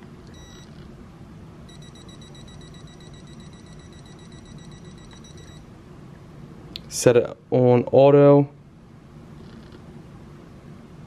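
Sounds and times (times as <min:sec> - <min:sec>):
multimeter steady high tone: 0:00.0 - 0:00.8, 0:01.6 - 0:05.8
low background hum: 0:00.0 - 0:11.0
multimeter short beep: 0:00.3 - 0:00.7, 0:01.7 - 0:05.6.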